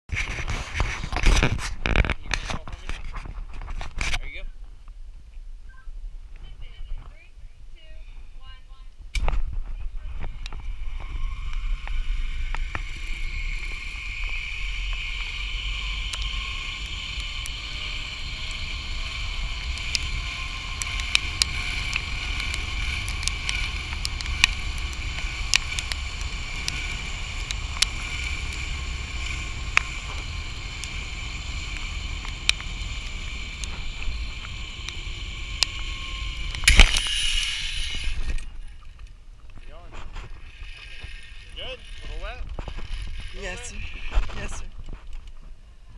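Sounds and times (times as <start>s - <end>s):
zip line pulleys whirring: 10.2s - 39.0s, 40.2s - 44.8s
sharp clicks: 19.6s - 39.1s.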